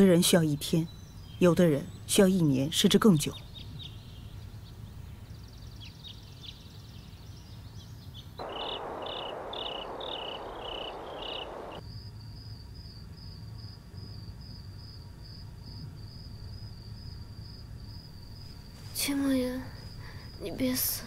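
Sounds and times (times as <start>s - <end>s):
crickets chirping: 8.3s - 21.0s
low hum: 8.4s - 11.8s
rushing noise: 8.4s - 11.8s.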